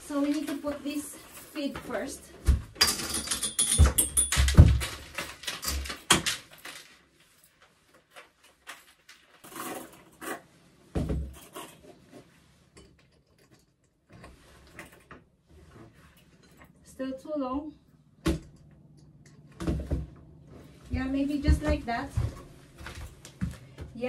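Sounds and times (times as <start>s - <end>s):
metal chain rattling: 2.8s - 6.8s.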